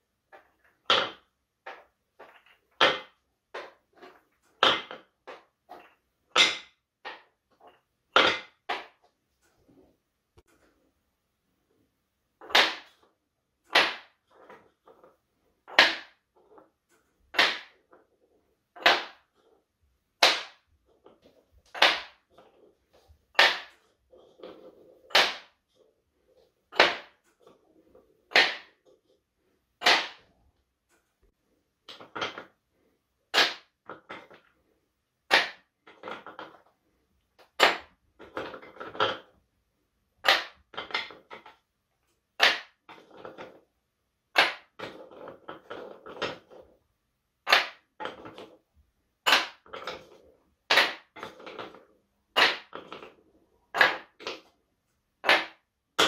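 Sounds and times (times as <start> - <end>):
wooden balls clacking into cups: 0.0 - 10.8, 12.2 - 56.0
wooden mallet tapping ball: 52.4 - 52.9.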